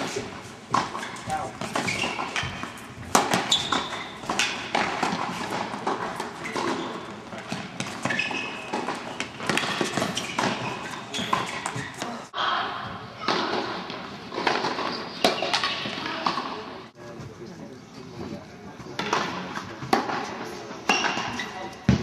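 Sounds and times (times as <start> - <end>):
racket striking tennis ball: 0.0 - 12.2
tennis ball bouncing: 0.0 - 12.2.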